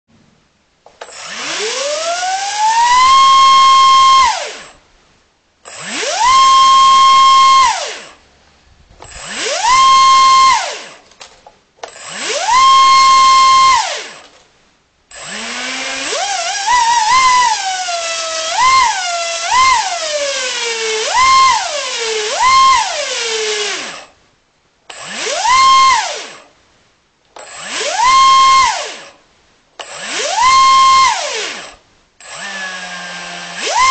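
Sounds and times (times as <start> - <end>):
electric propeller motor whining: 1.1 - 4.7, 5.7 - 8.2, 9.0 - 11.0, 11.9 - 14.2, 15.1 - 24.1, 27.5 - 29.2, 29.8 - 33.9.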